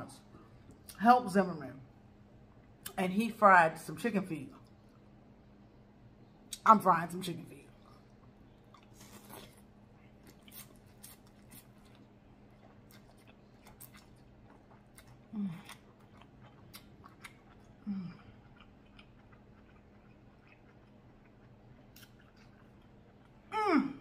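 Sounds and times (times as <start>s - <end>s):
person chewing noodles: 7.7s - 23.5s.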